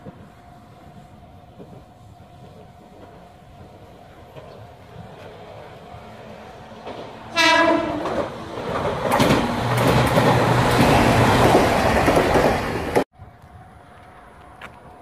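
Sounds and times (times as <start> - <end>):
train wheels rumbling on rail: 0.0 - 13.1
train horn blast: 7.3 - 8.2.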